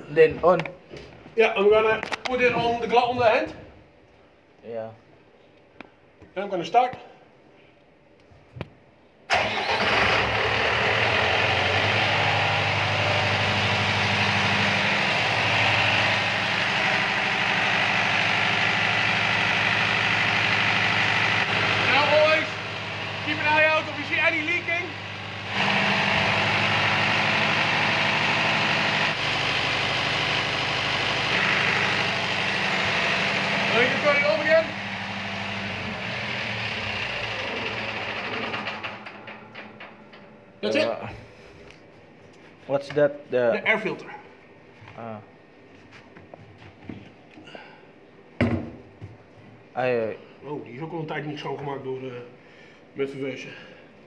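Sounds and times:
diesel generator engine running: 9.3 - 40.2.

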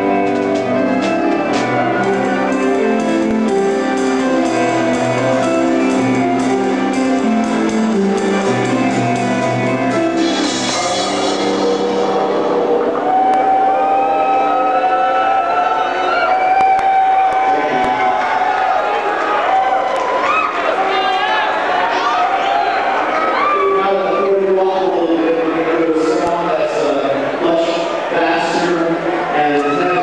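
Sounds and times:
bass guitar: 0.0 - 14.4.

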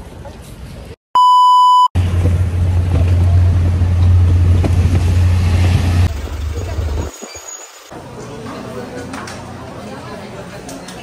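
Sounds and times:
censor bleep: 1.2 - 1.9
low rumble of riding tricycle: 2.0 - 7.2.

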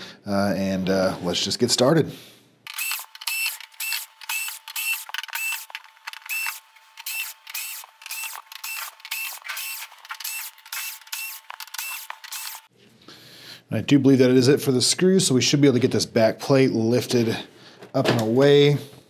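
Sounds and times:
cordless screwdriver whirring: 2.7 - 12.7.

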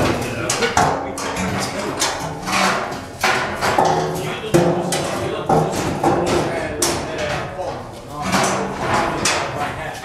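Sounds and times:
metal panels knocking: 0.0 - 10.0
people talking: 0.0 - 10.0.

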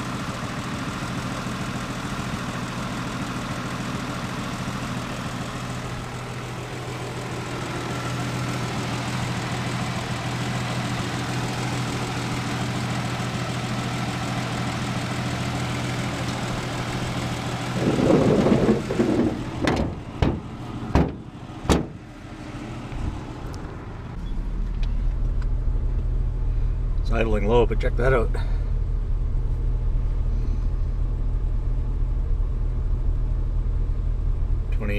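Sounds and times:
car engine idling: 0.0 - 34.9
car hood knocking shut: 17.8 - 22.0.

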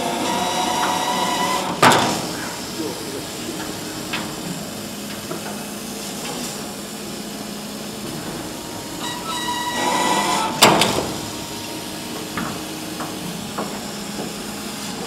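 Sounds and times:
laser cutter hiss and hum: 0.0 - 15.0
whining tone: 9.0 - 11.4.

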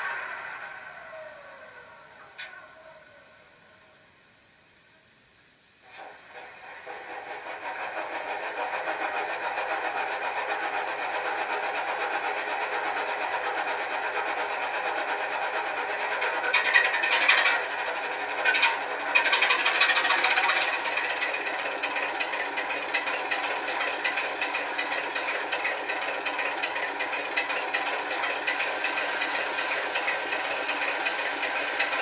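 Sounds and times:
diesel locomotive engine idling: 0.0 - 32.0.

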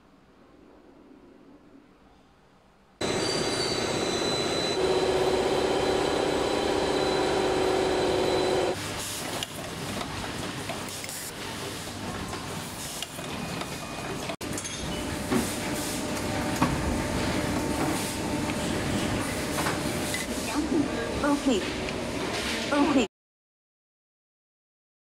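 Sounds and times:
soldering machine running: 3.0 - 8.8
wire-stranding machine running: 3.0 - 11.4.

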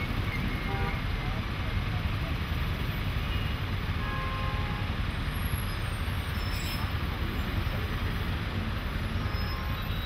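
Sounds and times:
bus rumbling past: 0.0 - 4.0
heavy road traffic: 0.0 - 10.0.

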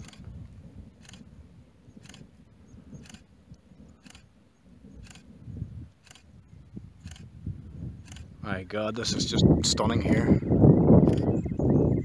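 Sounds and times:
camera shutter clicking: 2.0 - 2.2, 4.0 - 4.3, 5.0 - 5.2, 6.0 - 6.3.

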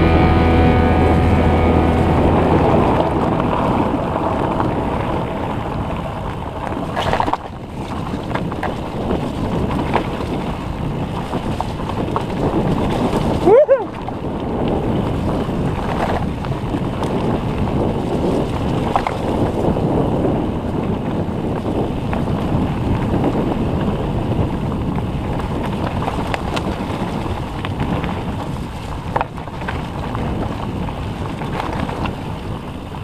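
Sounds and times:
bike tyres rumbling on dirt: 0.0 - 33.0
wind buffeting microphone: 0.0 - 33.0
bike clicks and knocks: 6.2 - 19.9.

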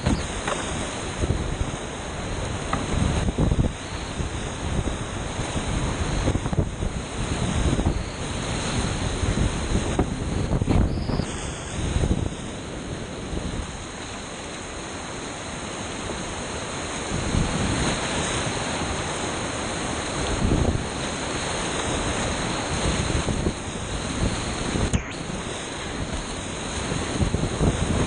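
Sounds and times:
low rumbles of wind buffeting: 0.0 - 13.9, 20.2 - 28.0
whitewater rapids rushing: 12.5 - 28.0.

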